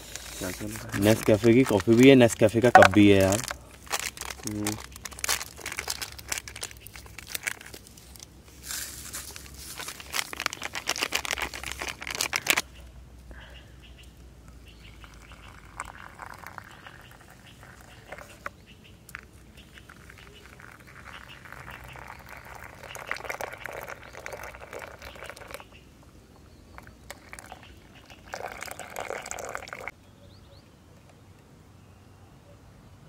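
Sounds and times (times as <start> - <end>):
hot water pouring into paper cups: 0.0 - 7.8, 9.8 - 12.6, 14.8 - 18.5, 19.1 - 25.7, 26.8 - 29.9.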